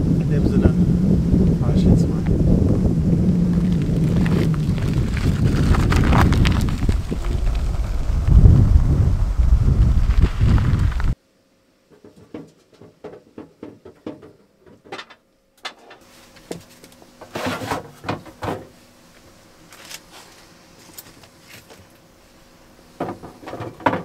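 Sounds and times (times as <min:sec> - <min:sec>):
wind noise on microphone: 0:00.0 - 0:11.2.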